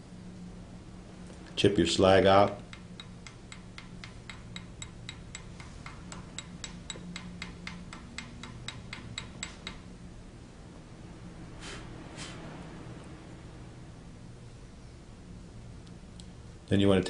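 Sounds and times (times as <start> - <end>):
chipping hammer tapping metal: 2.5 - 9.9.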